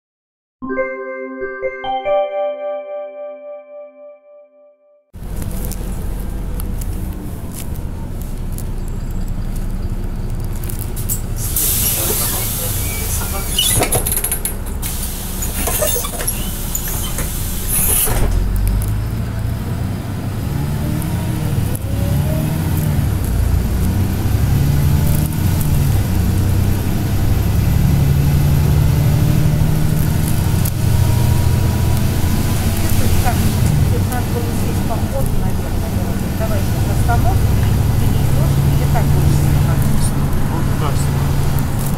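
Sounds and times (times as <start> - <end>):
bus engine running: 5.2 - 41.9
compressed air hiss: 11.4 - 13.4, 14.8 - 15.7.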